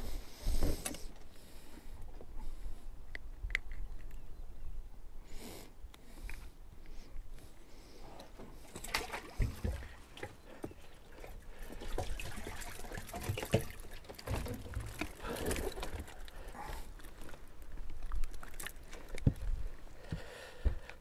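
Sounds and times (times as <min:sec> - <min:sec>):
wind rumbling on microphone: 0:19.2 - 0:20.0.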